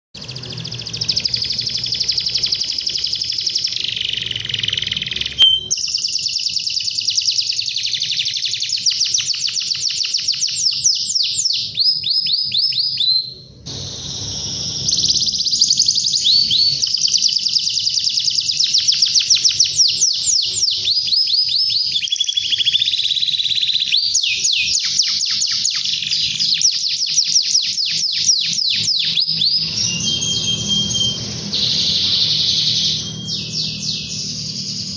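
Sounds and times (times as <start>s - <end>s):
canary singing rolling trills: 0.2s - 34.9s.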